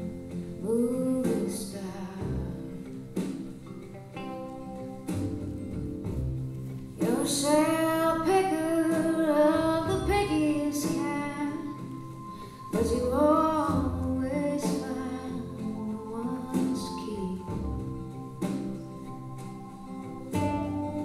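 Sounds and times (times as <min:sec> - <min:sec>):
soft musical accompaniment: 0:00.0 - 0:21.0
woman singing: 0:00.6 - 0:02.9, 0:07.0 - 0:18.4.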